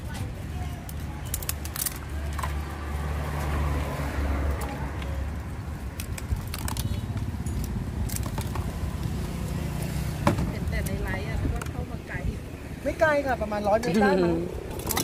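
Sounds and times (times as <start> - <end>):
traffic rumble: 0.0 - 15.0
vehicle passing: 1.8 - 6.7.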